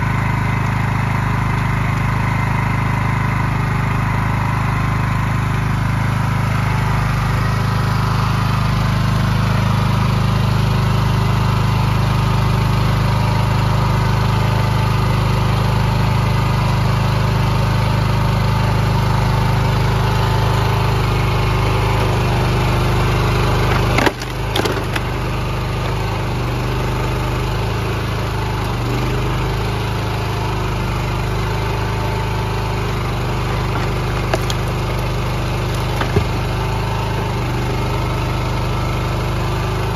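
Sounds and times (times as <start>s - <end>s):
small gas engine running: 0.0s - 39.9s
wood cracking: 23.5s - 25.4s, 33.3s - 36.7s.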